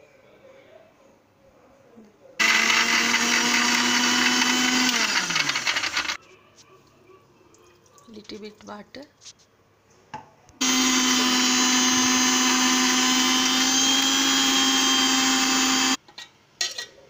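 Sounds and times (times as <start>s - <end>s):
electric mixer grinder running: 2.4s - 6.2s, 10.6s - 16.0s.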